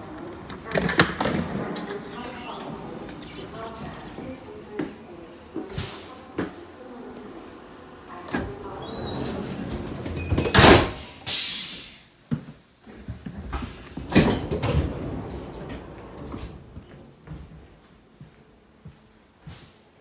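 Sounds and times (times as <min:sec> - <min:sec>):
sliding train doors clunking: 0:08.0 - 0:11.2, 0:13.4 - 0:17.8
short hiss: 0:11.0 - 0:12.1.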